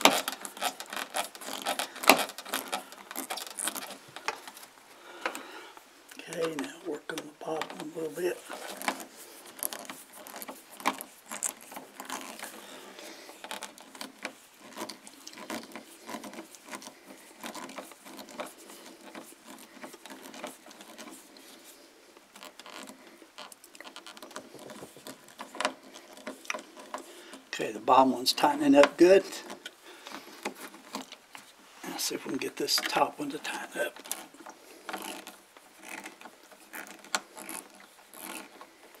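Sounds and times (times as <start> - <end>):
screwdriver turning screw: 0.0 - 4.6, 7.6 - 12.6, 13.3 - 21.2, 34.0 - 38.7.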